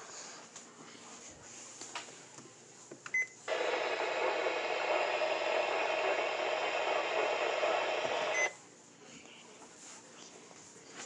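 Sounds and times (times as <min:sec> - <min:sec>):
radio static hissing: 0:03.5 - 0:08.5.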